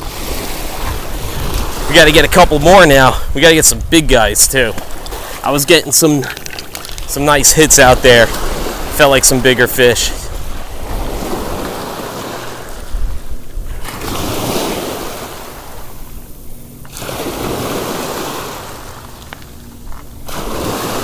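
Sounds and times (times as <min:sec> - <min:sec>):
waves washing over pebbles: 0:04.5 - 0:13.2, 0:13.8 - 0:16.0, 0:16.9 - 0:19.4, 0:20.2 - 0:21.0.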